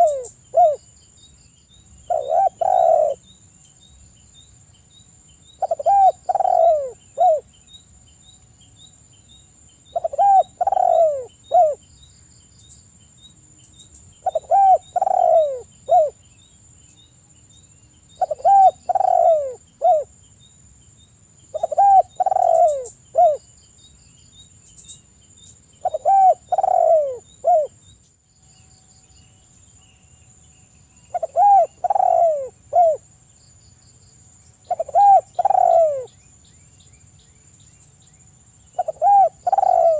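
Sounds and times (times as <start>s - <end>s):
dove cooing: 0.0s - 0.8s, 2.1s - 3.2s, 5.6s - 7.5s, 9.9s - 11.8s, 14.2s - 16.2s, 18.2s - 20.1s, 21.6s - 23.4s, 25.8s - 27.8s, 31.1s - 33.0s, 34.7s - 36.1s, 38.8s - 39.9s.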